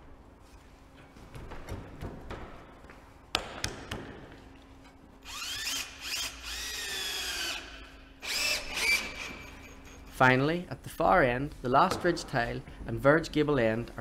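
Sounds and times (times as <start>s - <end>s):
cordless drill motor whine: 5.2s - 9.7s.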